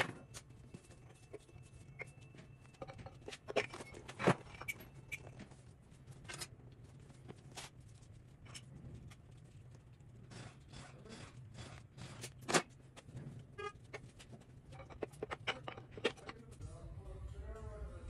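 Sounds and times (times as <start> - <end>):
metal tools clinking and knocking: 0.0 - 5.4, 13.6 - 16.5
steady low hum: 0.0 - 18.0.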